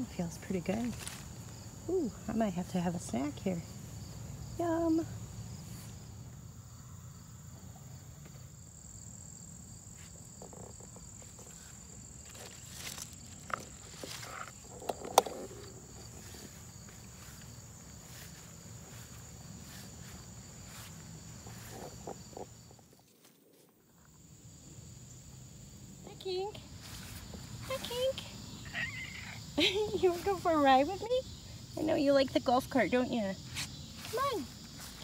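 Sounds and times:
insects trilling: 0.0 - 35.0
leaves rustling: 0.4 - 2.4, 11.0 - 22.3, 26.7 - 30.8, 33.4 - 35.0.

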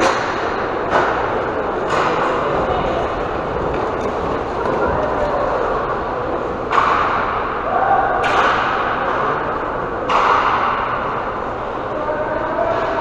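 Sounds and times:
skate wheels rumbling on floor: 0.0 - 8.0.

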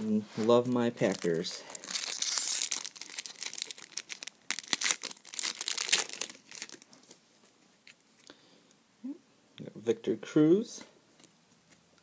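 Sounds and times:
foil wrapper crinkling and tearing: 1.0 - 7.2.

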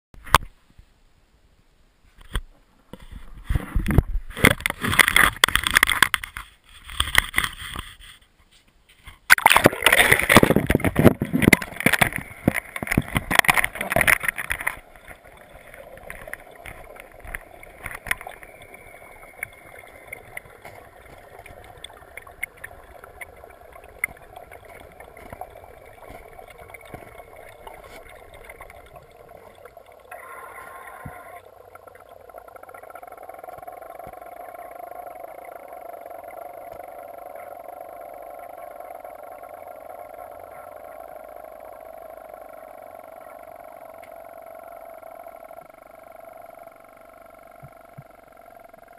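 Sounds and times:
muffled underwater hum: 9.3 - 48.9
faint clicks: 9.8 - 48.9.

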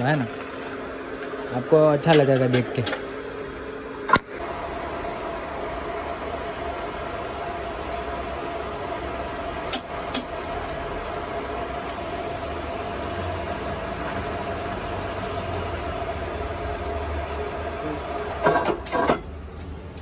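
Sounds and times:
metal lathe humming and whining: 4.4 - 18.5.

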